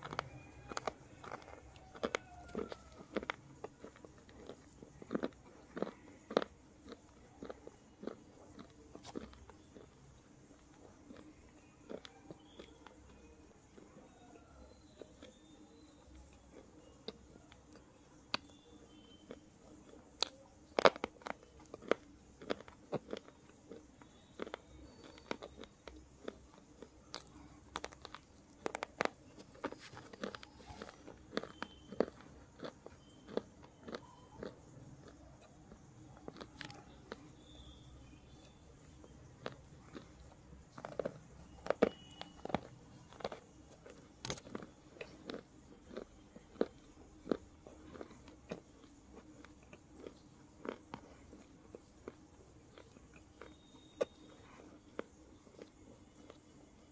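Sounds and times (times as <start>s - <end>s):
pencil being chewed crunching: 0.0s - 56.9s
slate pencil crunching: 27.1s - 33.9s.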